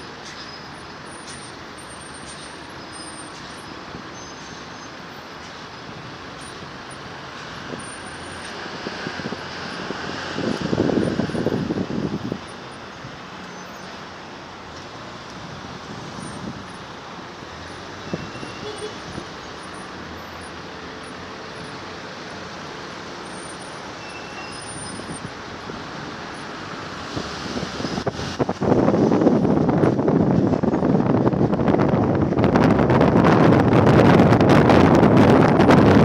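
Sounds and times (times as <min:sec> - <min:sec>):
city traffic engines and tyres: 0:00.0 - 0:36.0
wind buffeting microphone: 0:05.9 - 0:13.2, 0:15.3 - 0:17.2, 0:25.0 - 0:36.0.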